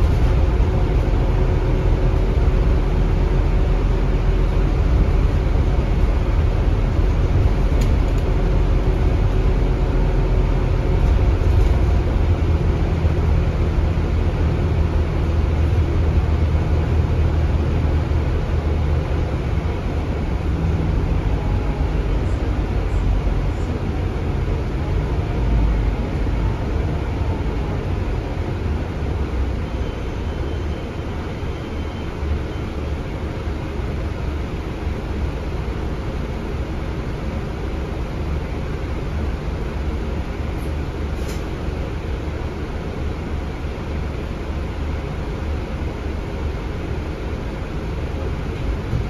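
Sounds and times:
bus engine and road rumble: 0.0 - 49.0.

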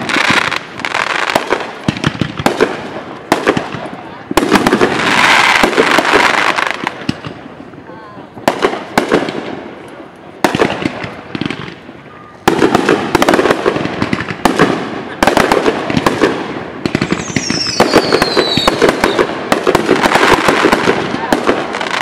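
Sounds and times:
fireworks bursting with bangs: 0.0 - 22.0
fireworks crackling: 0.0 - 22.0
falling whistle: 17.2 - 18.8.

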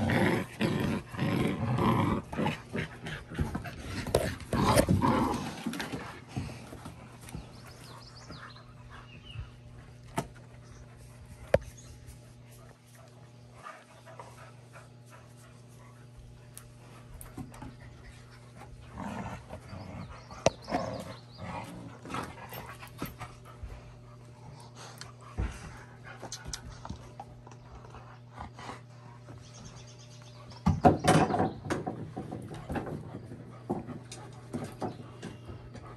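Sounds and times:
puppies panting: 6.2 - 30.6, 33.2 - 35.9.

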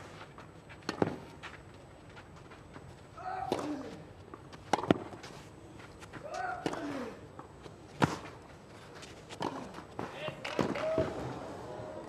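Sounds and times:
racket hitting tennis ball: 4.6 - 5.2.

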